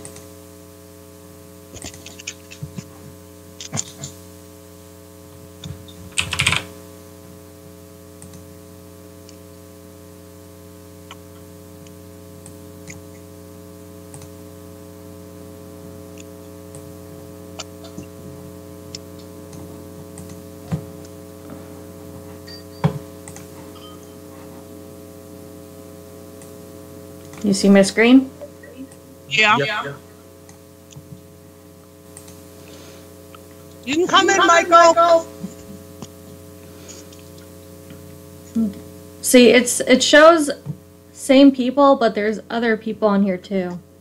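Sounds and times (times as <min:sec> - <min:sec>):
steady electrical hum: 0:00.0 - 0:44.0
keyboard and mouse clicks: 0:01.8 - 0:02.9, 0:03.6 - 0:04.2, 0:05.6 - 0:06.7.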